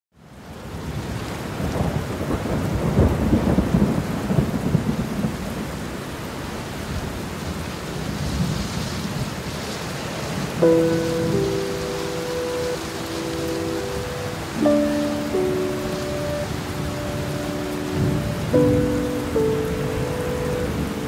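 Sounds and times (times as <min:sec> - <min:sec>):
heavy rain pouring: 0:00.2 - 0:21.0
thunder rumbling: 0:01.6 - 0:05.8, 0:10.4 - 0:21.0.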